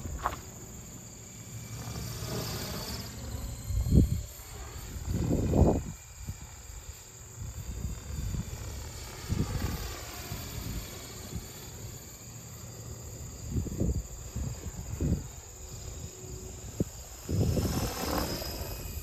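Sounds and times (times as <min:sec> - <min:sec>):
rc helicopter motor whine: 0:00.0 - 0:19.0
wind buffeting microphone: 0:03.4 - 0:06.7, 0:13.4 - 0:19.0.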